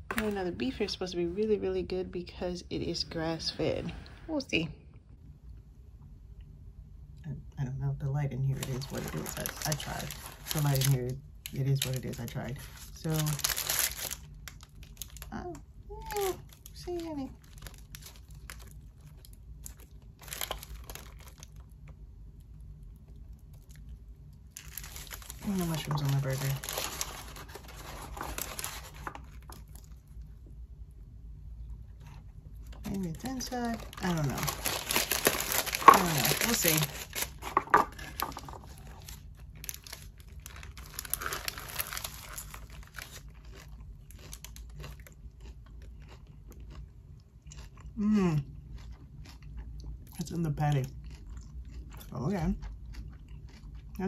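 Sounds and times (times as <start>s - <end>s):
paper wrapper crinkling: 8.4s - 21.8s, 24.5s - 30.2s, 32.6s - 43.7s
wet crunching of lettuce: 8.5s - 15.4s, 16.0s - 22.0s, 23.0s - 30.3s, 31.9s - 54.0s
person chewing a burger: 31.4s - 32.8s, 37.1s - 50.2s, 50.9s - 54.0s.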